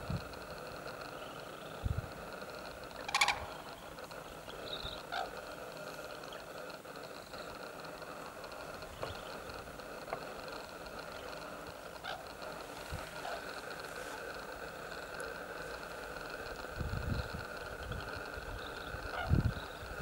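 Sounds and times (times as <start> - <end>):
steady background hiss: 0.0 - 20.0
rattling pulsed call: 2.4 - 13.7
faint short calls: 3.0 - 5.5.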